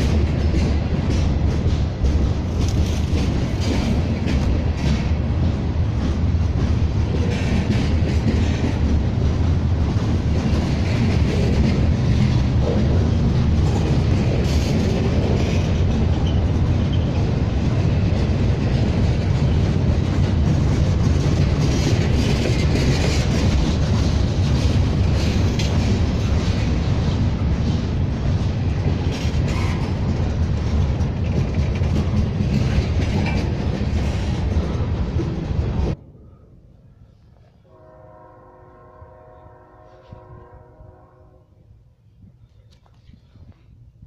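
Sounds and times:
wheels clicking over rail joints: 0.0s - 36.0s
train wheels rumbling on rails: 0.0s - 44.0s.

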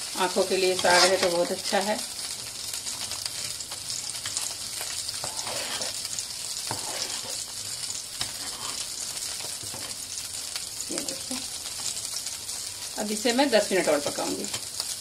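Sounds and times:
pot simmering: 0.0s - 15.0s.

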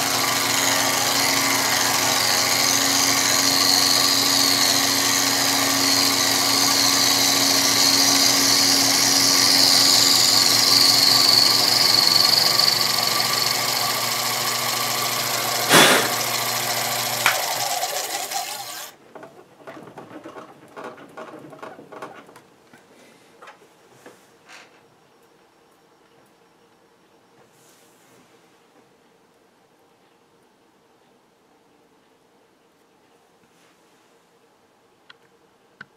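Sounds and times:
milling machine motor whine: 0.0s - 18.9s
spindle winding down: 0.0s - 19.0s
sharp click: 15.7s - 16.2s.

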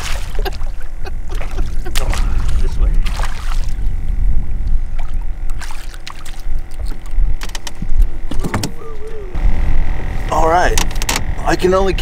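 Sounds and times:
wind rumble on microphone: 0.0s - 12.0s
clicks and knocks from canoe: 6.8s - 8.8s.

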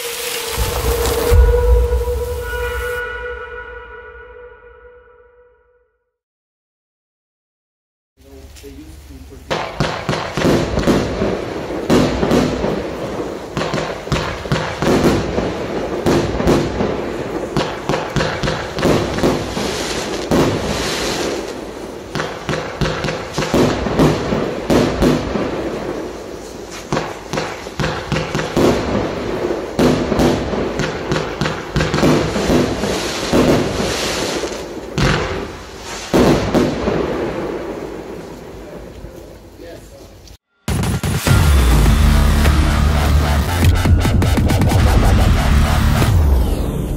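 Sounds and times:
firework barrage bangs: 0.0s - 4.0s, 9.5s - 38.9s.

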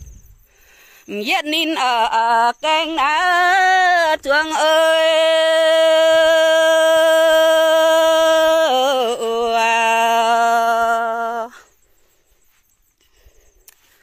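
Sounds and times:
woman singing unaccompanied: 1.0s - 11.8s.

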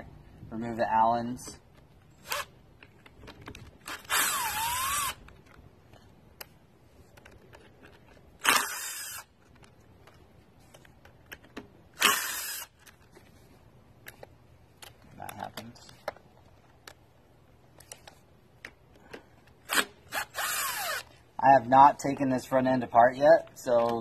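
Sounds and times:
electric impact wrench bursts: 3.9s - 5.2s, 8.4s - 9.3s, 12.0s - 12.8s, 19.7s - 21.1s.

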